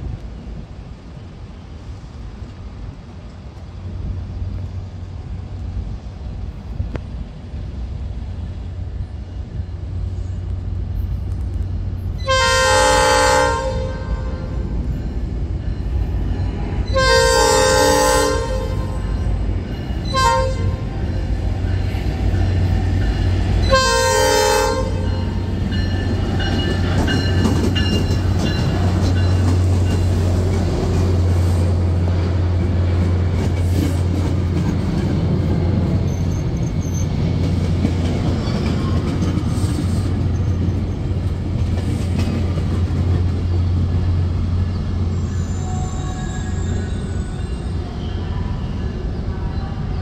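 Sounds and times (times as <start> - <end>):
locomotive engine and wheels rumbling: 0.0 - 50.0
locomotive air horn blasts: 12.2 - 14.7, 16.5 - 19.2, 20.0 - 20.9, 23.6 - 25.5, 45.3 - 46.8.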